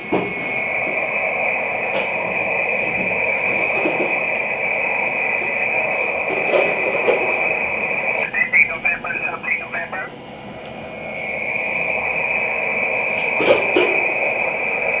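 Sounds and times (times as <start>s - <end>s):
radio noise hiss: 5.4s - 10.2s.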